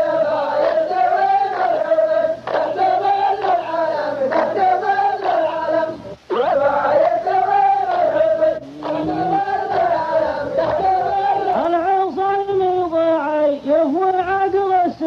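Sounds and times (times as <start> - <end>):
men chanting in unison: 0.0 - 12.2.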